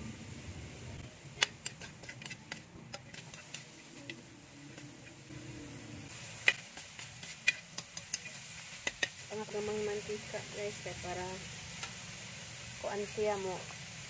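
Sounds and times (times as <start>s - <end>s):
metal spatula scraping wok: 1.3s - 5.3s, 6.1s - 10.4s.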